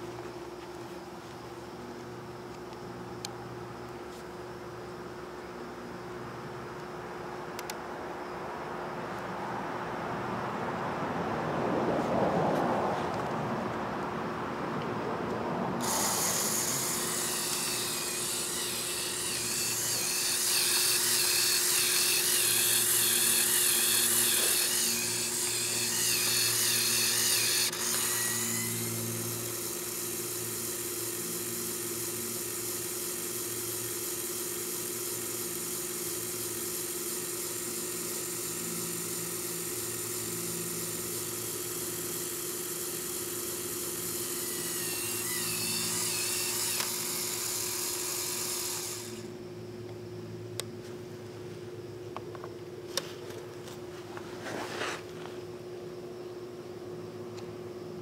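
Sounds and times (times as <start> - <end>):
electric motor whining through gears: 15.8 - 49.4.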